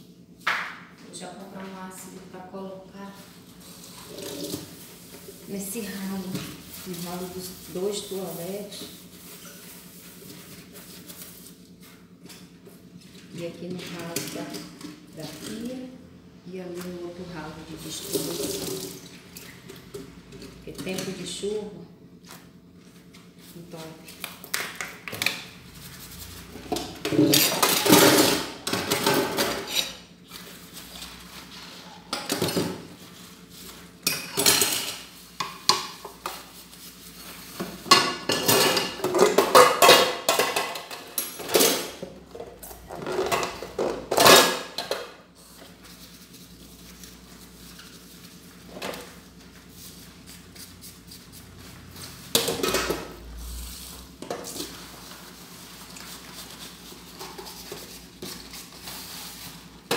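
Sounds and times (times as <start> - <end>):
dishes and cutlery clattering: 37.8 - 42.2.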